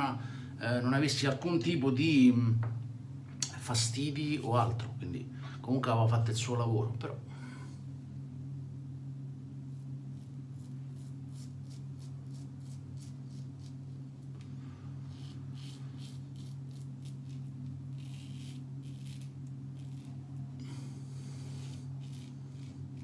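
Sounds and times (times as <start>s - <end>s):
steady low hum: 0.0s - 23.0s
razor scraping stubble: 9.7s - 20.4s, 21.2s - 23.0s.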